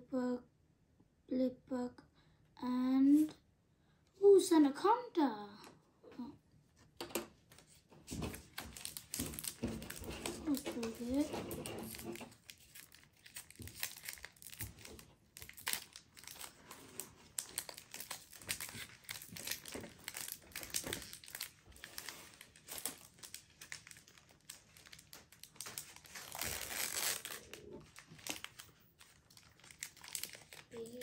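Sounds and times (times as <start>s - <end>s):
foil wrapper crinkling and tearing: 7.5s - 31.0s.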